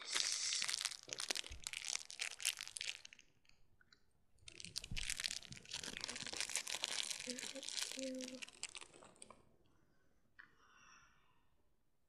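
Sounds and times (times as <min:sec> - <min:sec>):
close rustling and crinkling: 0:04.5 - 0:09.3.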